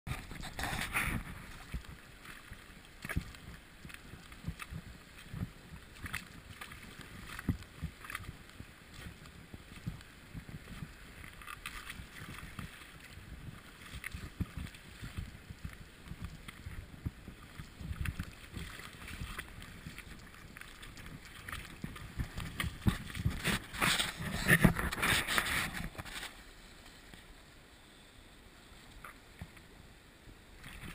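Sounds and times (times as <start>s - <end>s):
wind buffeting microphone: 2.8s - 26.1s.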